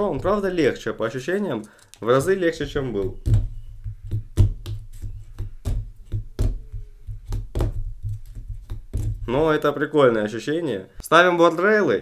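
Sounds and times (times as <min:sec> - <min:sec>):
fingerboard knocks and clacks: 0:03.0 - 0:09.6.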